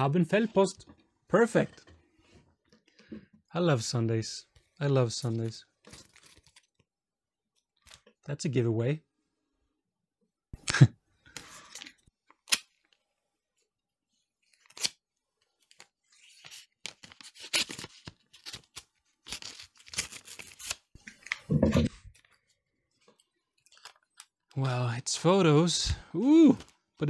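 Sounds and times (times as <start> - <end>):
paper rustling: 15.5 - 22.4.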